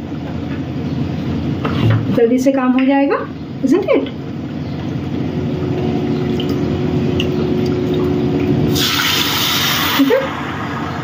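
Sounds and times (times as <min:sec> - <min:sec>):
low steady hum: 0:00.0 - 0:09.4
water pouring into a pan: 0:08.7 - 0:10.6.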